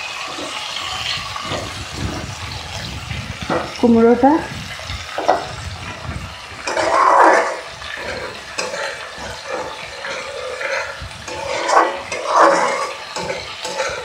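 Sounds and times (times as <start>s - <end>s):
paste bubbling and sizzling: 0.0s - 14.0s
spatula scraping a pan: 5.1s - 14.0s.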